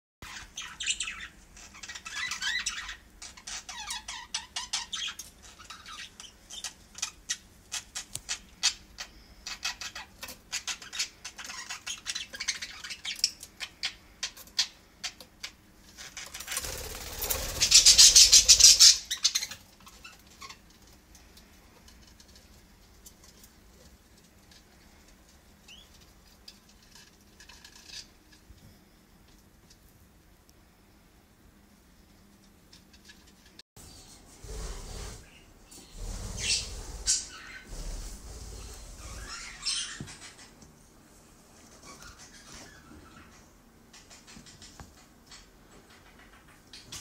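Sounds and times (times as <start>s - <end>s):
budgerigars chirping: 0.2s - 15.2s, 17.2s - 20.6s, 36.4s - 37.7s, 38.6s - 40.5s.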